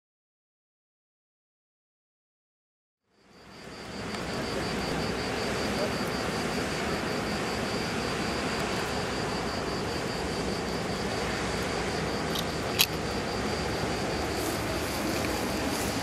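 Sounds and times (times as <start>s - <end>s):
faint high pulsing tone: 3.1s - 16.0s
barge engine rumble: 4.2s - 16.0s.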